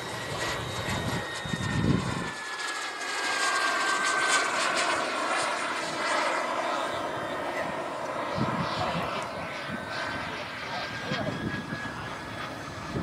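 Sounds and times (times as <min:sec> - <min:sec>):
model jet turbine whining: 0:00.0 - 0:13.0
wind buffeting microphone: 0:00.3 - 0:02.4, 0:07.5 - 0:13.0.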